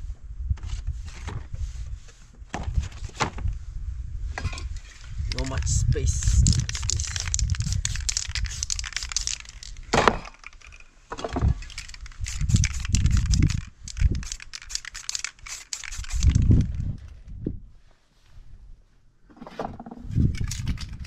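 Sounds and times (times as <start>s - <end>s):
spray paint can hissing: 5.3s - 10.7s, 11.6s - 16.6s
crackling clicks: 6.4s - 10.9s, 11.6s - 16.7s.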